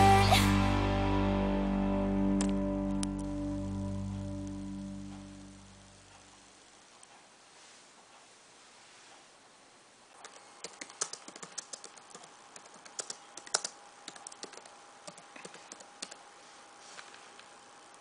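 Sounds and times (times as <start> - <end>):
faint steady tone: 0.0 - 10.7
laptop keyboard typing: 10.2 - 16.3.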